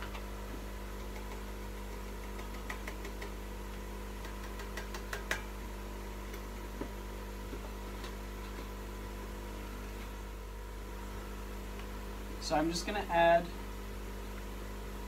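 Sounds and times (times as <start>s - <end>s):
aquarium air pump humming: 0.0s - 15.0s.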